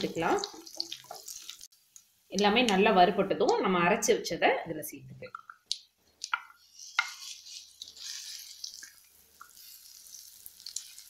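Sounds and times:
paste sizzling in hot oil: 0:00.0 - 0:02.4, 0:06.6 - 0:11.0
spatula tapping and scraping pan: 0:06.2 - 0:08.4.

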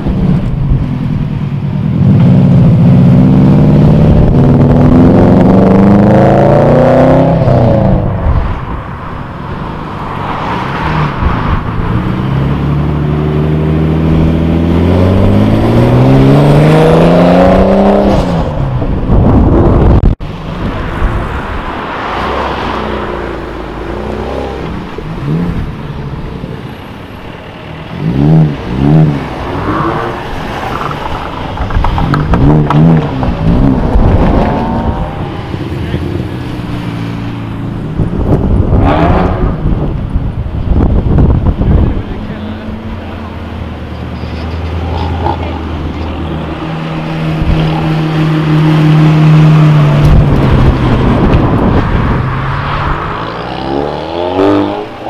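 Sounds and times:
car engine accelerating: 0:00.0 - 0:55.0
car engine revving in blips: 0:27.8 - 0:55.0.

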